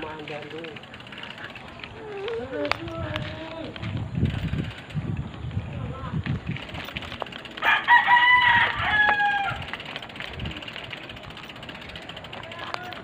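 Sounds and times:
rooster crowing: 7.6s - 9.8s.

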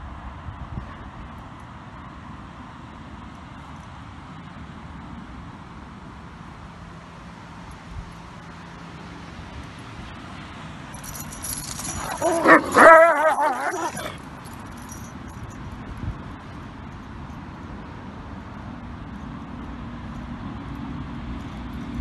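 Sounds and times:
outdoor background noise: 0.0s - 22.0s
dog yelping whine: 11.5s - 14.2s.

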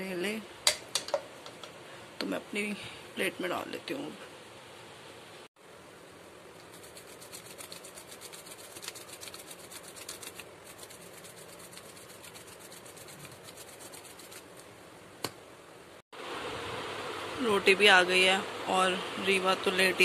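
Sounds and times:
faint fast scratching: 6.6s - 14.7s.

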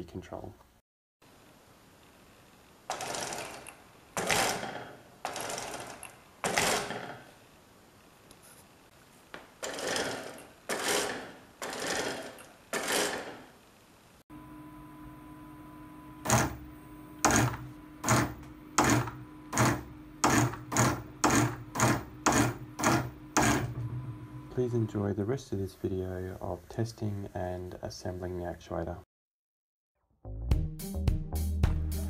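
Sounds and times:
steady motor hum: 14.3s - 25.1s
robot actuator whirring: 16.2s - 16.6s
robot leg knocking: 17.2s - 23.9s.

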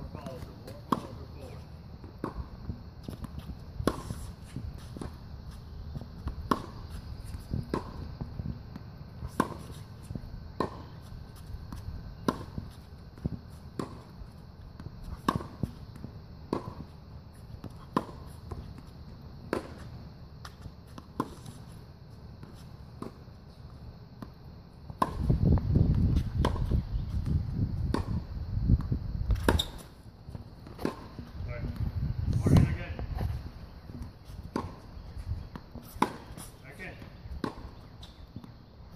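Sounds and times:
tennis ball bouncing: 0.1s - 38.7s
racket hitting tennis ball: 0.2s - 23.6s, 24.2s - 27.3s, 27.9s - 28.3s, 29.2s - 38.7s.

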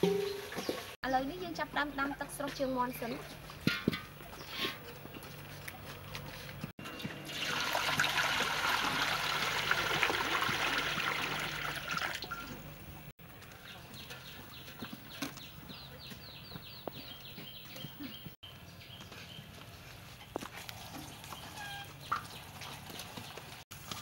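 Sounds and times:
water pouring into a wok: 7.2s - 12.4s.

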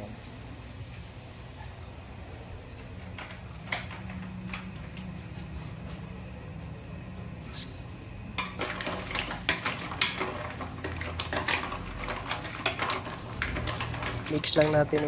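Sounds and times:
low steady hum: 0.0s - 15.0s
shells clattering in metal pot: 8.4s - 15.0s.

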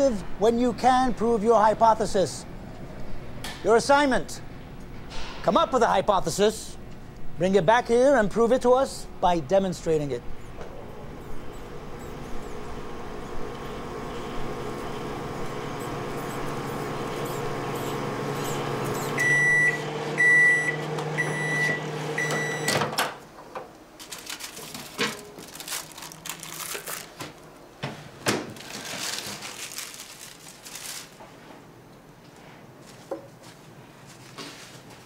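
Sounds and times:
microwave oven humming: 5.9s - 29.9s
microwave beeping: 10.4s - 23.1s.

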